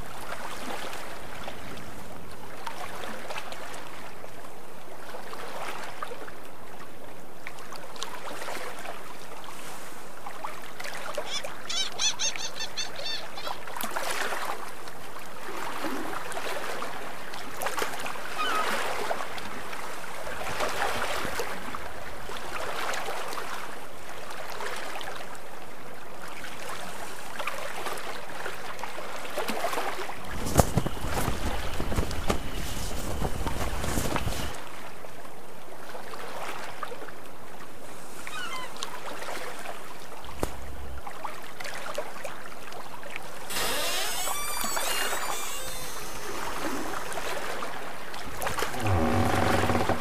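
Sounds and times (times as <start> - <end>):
water rushing along boat hull: 0.0 - 50.0
wind: 0.0 - 50.0
short high calls: 11.2 - 13.7, 43.5 - 47.1
high chirps: 11.3 - 13.6.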